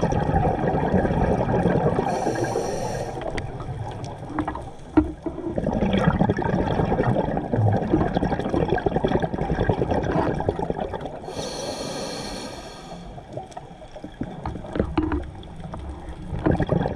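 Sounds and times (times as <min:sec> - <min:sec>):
exhaled bubbles gurgling underwater: 0:00.0 - 0:16.9
hissing inhalation through regulator: 0:02.0 - 0:03.4, 0:11.2 - 0:13.3.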